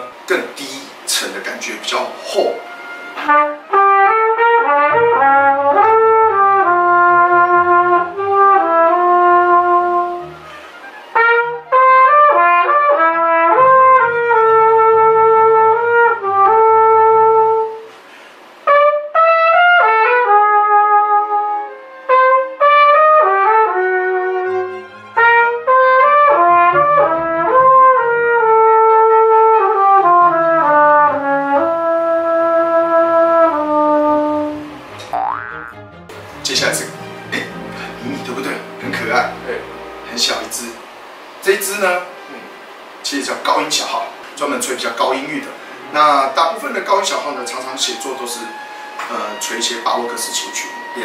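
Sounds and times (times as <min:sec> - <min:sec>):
low accompanying notes: 0:01.2 - 0:17.8, 0:23.4 - 0:42.6
flugelhorn playing jazz melody: 0:02.4 - 0:17.9, 0:18.6 - 0:40.1, 0:47.4 - 0:51.0.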